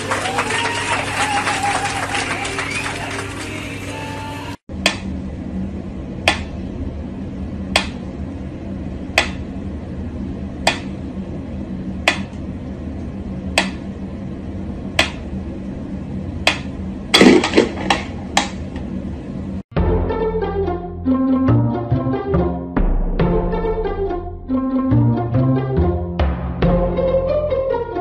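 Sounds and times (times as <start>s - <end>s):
loud thump: 22.8s - 24.6s.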